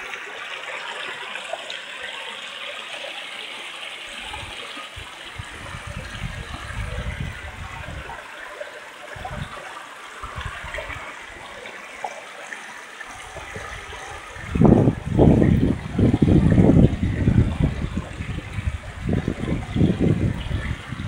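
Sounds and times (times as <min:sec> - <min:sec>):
stream running over rocks: 0:00.0 - 0:21.0
wind buffeting microphone: 0:04.2 - 0:08.3, 0:09.1 - 0:11.4, 0:13.1 - 0:21.0.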